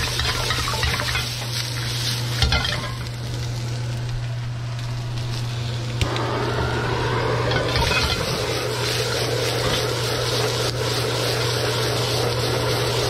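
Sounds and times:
vegetables sizzling in oil: 0:00.0 - 0:13.0
blowtorch roaring: 0:01.7 - 0:13.0
blowtorch click: 0:05.9 - 0:06.4.

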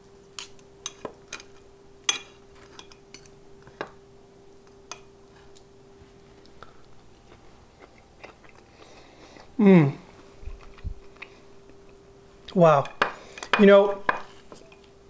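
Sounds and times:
faint steady hum: 0:00.0 - 0:15.0
cutlery clinking on a plate: 0:00.4 - 0:03.3.

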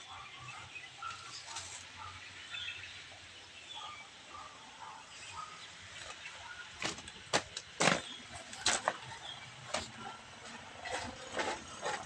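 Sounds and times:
faint outdoor background noise: 0:00.0 - 0:12.0
sharp knocks and crunches: 0:06.8 - 0:09.0.

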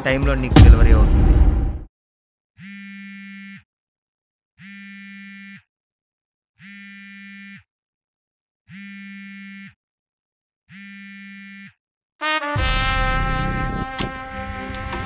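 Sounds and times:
electronic buzzer tone: 0:02.6 - 0:03.7, 0:04.6 - 0:05.7, 0:06.6 - 0:07.7, 0:08.7 - 0:09.8, 0:10.7 - 0:11.8.

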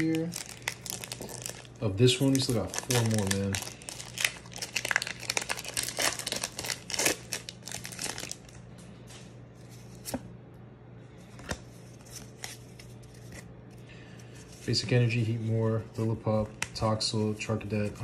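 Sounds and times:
foil wrapper tearing and crinkling: 0:00.0 - 0:08.6.

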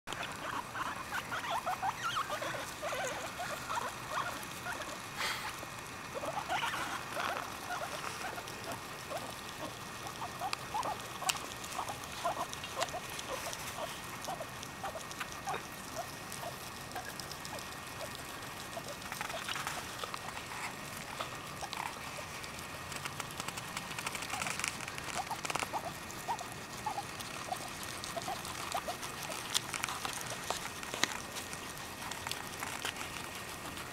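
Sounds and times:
guinea pig squeaking: 0:00.1 - 0:05.1, 0:06.1 - 0:33.9
guinea pigs chewing grass: 0:00.1 - 0:33.9.

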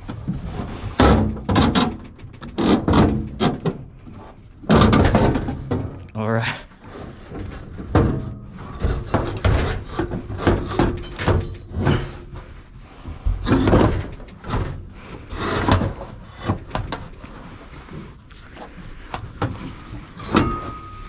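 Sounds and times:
metal clunks knocks and scrapes: 0:00.0 - 0:06.1, 0:06.8 - 0:18.2, 0:19.2 - 0:21.0.

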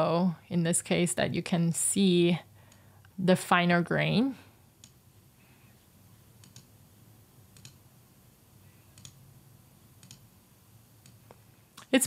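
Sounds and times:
low room tone hum: 0:00.0 - 0:12.0
computer mouse clicks: 0:04.8 - 0:05.0, 0:06.4 - 0:06.7, 0:07.5 - 0:07.8, 0:08.9 - 0:09.2, 0:10.0 - 0:10.3, 0:11.0 - 0:11.9.

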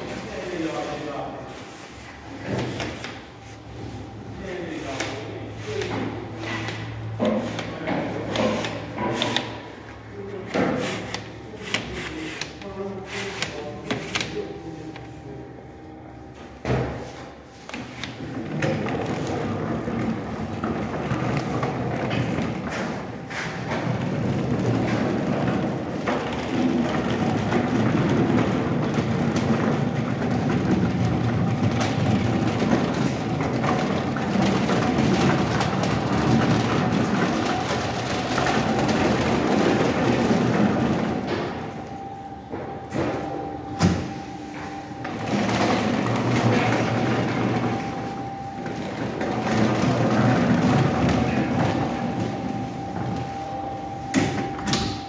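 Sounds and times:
rack rolling rattle: 0:23.6 - 0:41.7, 0:48.6 - 0:53.1.

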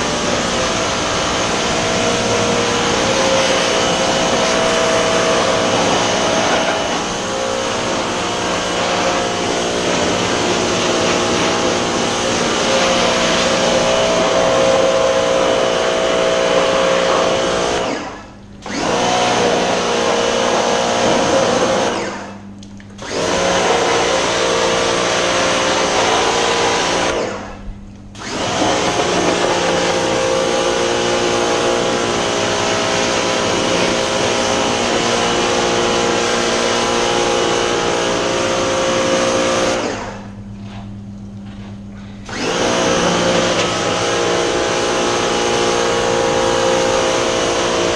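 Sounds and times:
water jet hissing: 0:00.0 - 0:18.1
pressure washer motor hum: 0:00.0 - 0:47.9.

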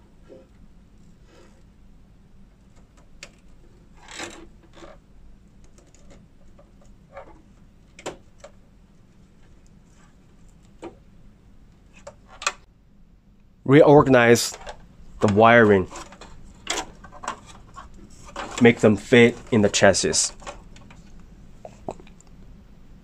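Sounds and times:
cable rustling: 0:14.2 - 0:22.3.

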